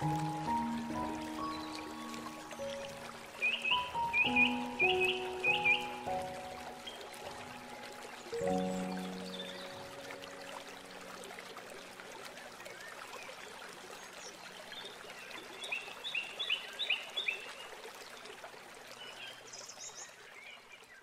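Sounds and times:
birds calling: 0.0 - 10.7
stream babbling: 0.0 - 21.0.

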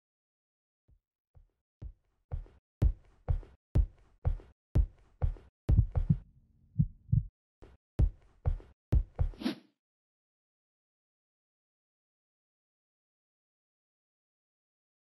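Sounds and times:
deep rhythmic thumps: 1.8 - 6.2, 6.8 - 7.3, 8.0 - 9.4.

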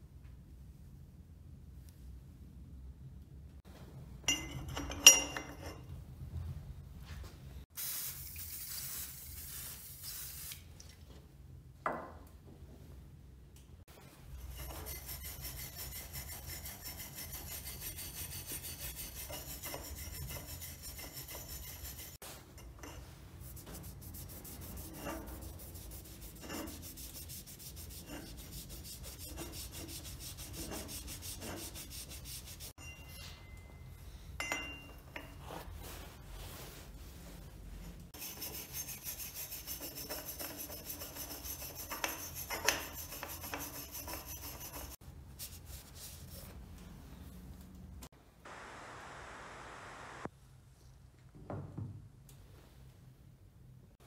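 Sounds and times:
paper towel wiping metal: 14.6 - 32.7.

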